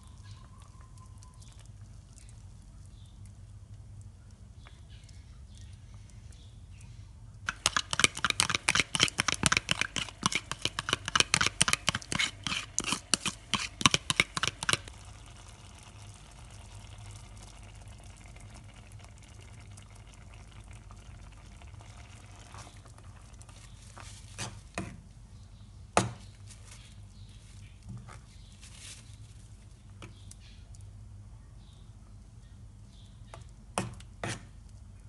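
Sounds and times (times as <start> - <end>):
mixture simmering: 0.0 - 31.2
metal spoon scraping saucepan: 7.5 - 14.8.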